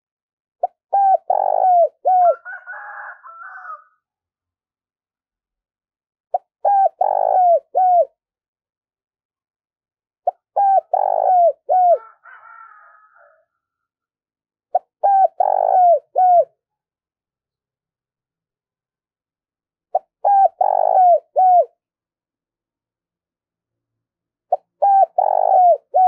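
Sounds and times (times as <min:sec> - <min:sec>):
dove cooing: 0:00.6 - 0:03.8, 0:06.3 - 0:08.2, 0:10.2 - 0:12.8, 0:14.7 - 0:16.6, 0:19.9 - 0:21.8, 0:24.5 - 0:26.0.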